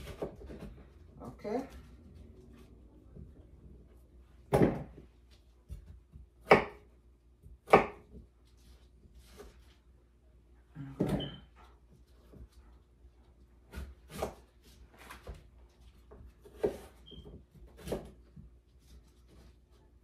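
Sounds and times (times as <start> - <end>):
knife chopping on wooden board: 0.0 - 0.8, 4.5 - 5.0, 5.6 - 8.2, 13.7 - 14.5, 16.1 - 18.5.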